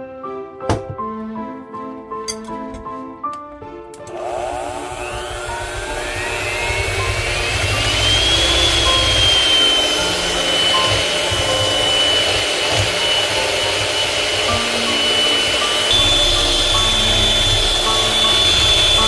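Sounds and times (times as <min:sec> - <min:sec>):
electric hand mixer whining: 0:04.0 - 0:19.0.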